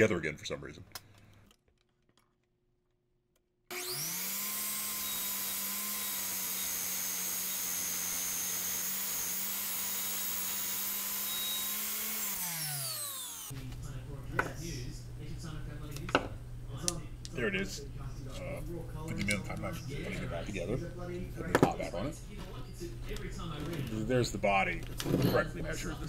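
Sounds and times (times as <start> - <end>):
miter saw motor whining: 3.7 - 13.5.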